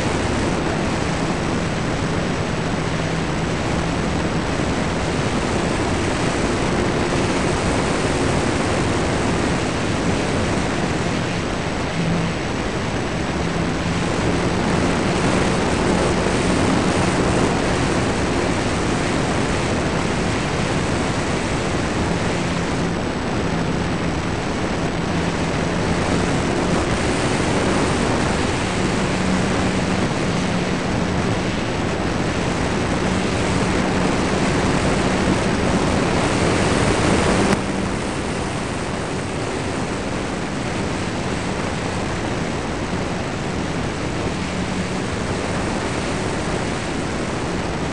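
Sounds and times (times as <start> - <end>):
electric motor and propeller hum: 0.0 - 47.9
wind rush over microphone: 0.0 - 47.9.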